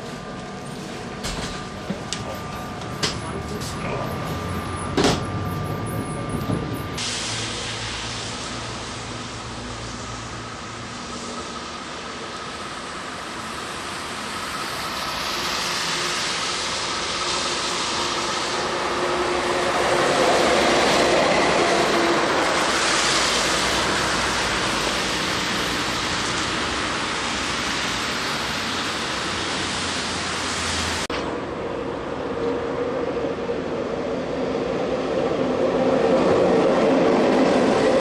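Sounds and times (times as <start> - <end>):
tram running on rails: 0.0 - 38.0
car traffic on wet road: 7.0 - 32.2.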